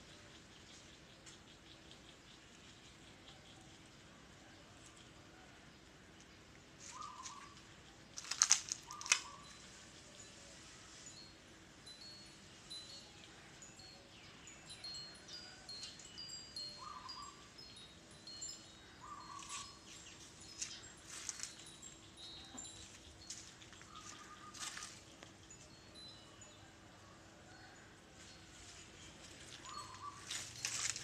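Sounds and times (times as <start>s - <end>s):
birds tinkling calls: 0.0s - 31.0s
sharp crackles: 8.1s - 9.4s, 29.7s - 31.0s.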